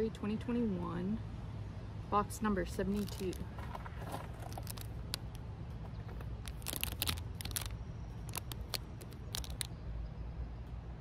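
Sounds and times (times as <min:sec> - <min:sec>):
low steady rumble: 0:00.0 - 0:11.0
plastic packet crinkling: 0:02.9 - 0:05.4, 0:06.1 - 0:09.7.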